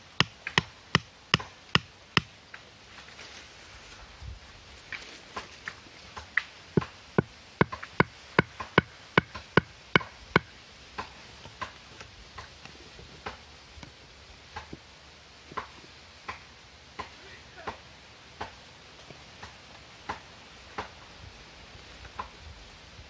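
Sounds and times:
sharp knocks on wood: 6.8 - 11.7.

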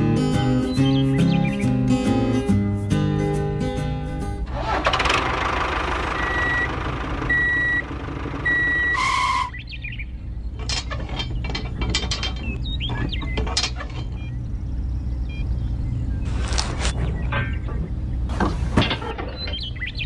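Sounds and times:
low engine rumble: 4.0 - 20.0
electronic reversing beeps: 6.2 - 6.7, 7.3 - 9.5, 15.2 - 16.4.

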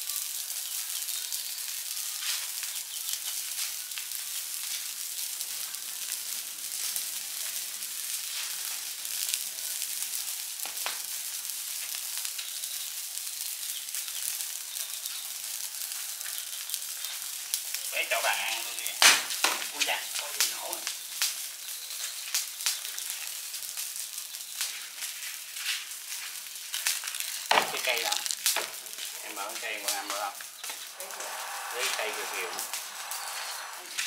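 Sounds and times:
fire crackling and hissing: 0.0 - 34.0
sharp crack of fire: 0.0 - 34.0.

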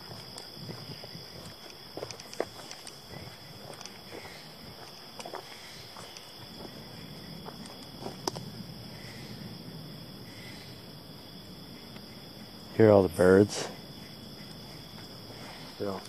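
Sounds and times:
insects chirping: 0.0 - 16.0
clicks and crackles in dry leaves: 0.2 - 6.7.

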